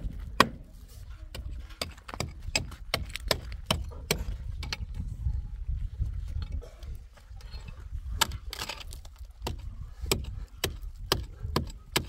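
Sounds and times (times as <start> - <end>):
steady low rumble: 2.2 - 11.5.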